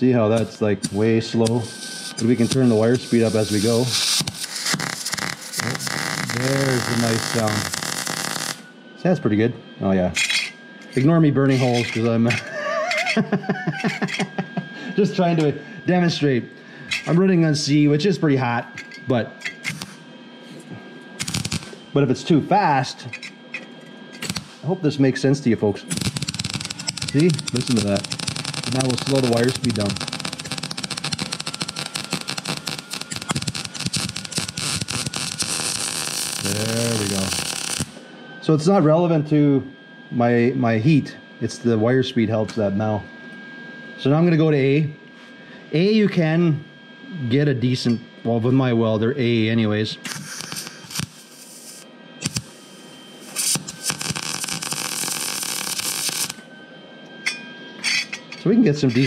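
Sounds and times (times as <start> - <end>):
welding arc crackling and popping: 0.3 - 8.6, 19.4 - 20.0, 21.2 - 21.8, 23.1 - 24.7, 25.9 - 38.0, 50.0 - 56.4.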